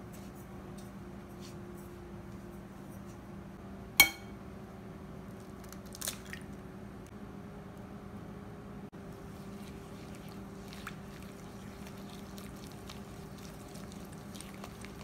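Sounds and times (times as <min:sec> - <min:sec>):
egg knocking on glass bowl: 0:04.0 - 0:04.3.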